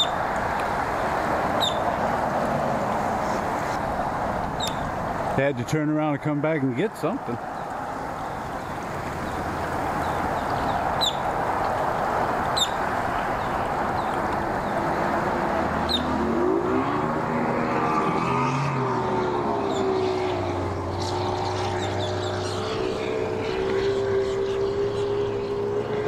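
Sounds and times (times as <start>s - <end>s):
steady rushing noise: 0.0s - 18.1s
outboard motor revving: 13.4s - 26.0s.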